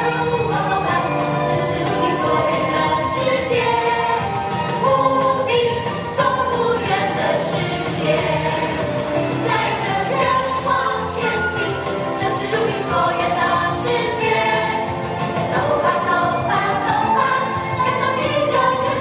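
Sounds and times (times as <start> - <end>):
live band playing: 0.0 - 18.4
group singing a children's song: 0.0 - 19.0.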